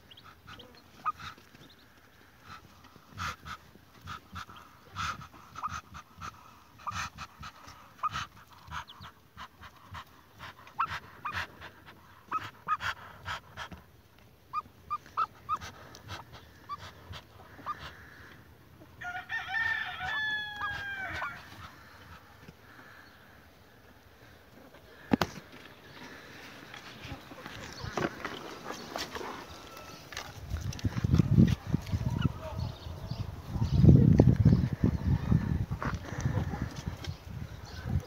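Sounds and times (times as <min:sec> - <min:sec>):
ducklings peeping: 0:00.0 - 0:13.4, 0:14.5 - 0:18.4, 0:25.9 - 0:38.0.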